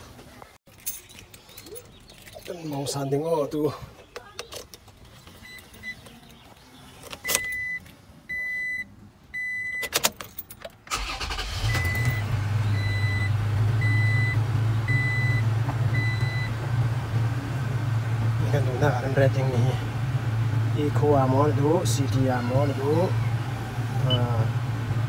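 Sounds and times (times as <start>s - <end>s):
dashboard beeps: 7.2s - 9.9s, 12.8s - 16.5s
car engine idling: 10.9s - 25.0s.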